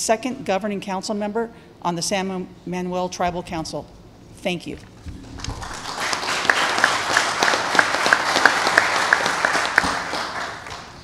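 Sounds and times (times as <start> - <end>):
small audience applauding: 5.2 - 11.0
nearby person's sharp claps: 5.4 - 11.0.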